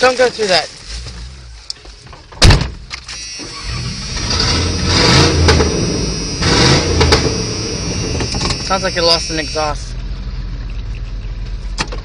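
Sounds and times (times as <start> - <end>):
engine revving without exhaust: 3.3 - 10.6.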